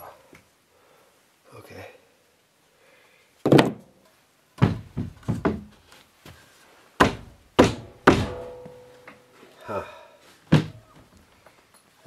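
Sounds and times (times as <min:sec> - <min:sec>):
wooden thunks and knocks: 0:03.4 - 0:03.9, 0:04.6 - 0:05.8, 0:07.0 - 0:08.7, 0:10.5 - 0:11.2
faint ringing hum: 0:07.8 - 0:09.7.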